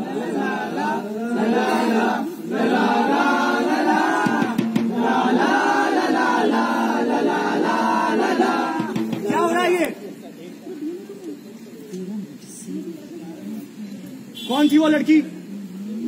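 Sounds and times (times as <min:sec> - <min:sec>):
group chant-like singing: 0:00.0 - 0:09.3.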